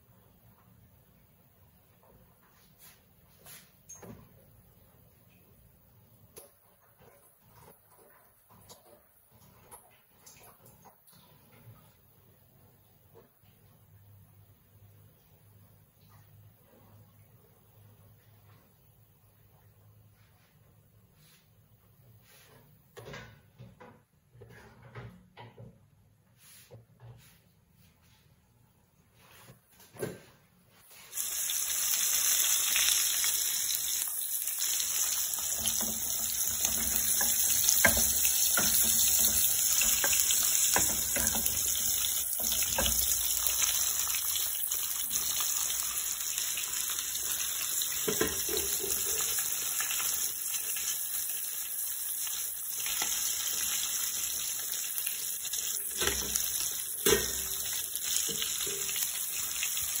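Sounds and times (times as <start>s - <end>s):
fish sizzling in oil: 30.9s - 60.0s.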